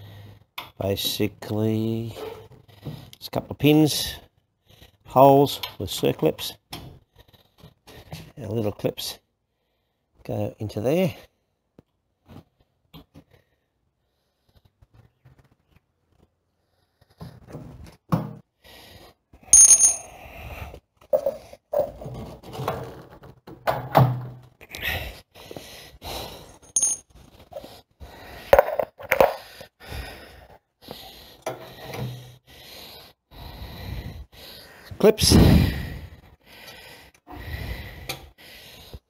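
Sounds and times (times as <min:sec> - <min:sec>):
metal parts clinking: 0:19.6 - 0:20.2, 0:26.5 - 0:27.0.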